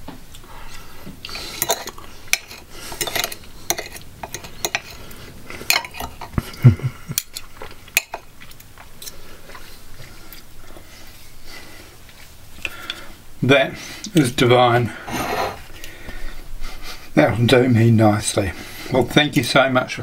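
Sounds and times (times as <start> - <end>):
knife and fork scraping a plate: 1.3 - 6.3, 15.1 - 15.6.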